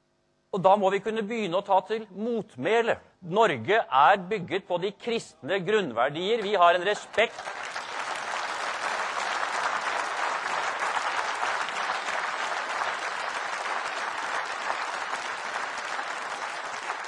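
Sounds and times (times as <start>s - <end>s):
large audience applauding: 6.3s - 17.0s.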